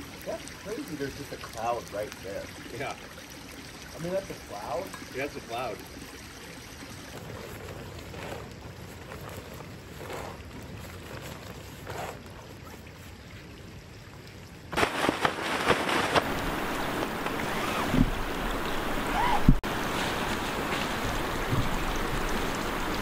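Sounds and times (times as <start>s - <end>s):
quilt rustling: 7.0s - 13.2s, 14.8s - 18.2s
wind noise: 14.7s - 23.0s
tent fly flapping snaps: 14.8s - 18.0s.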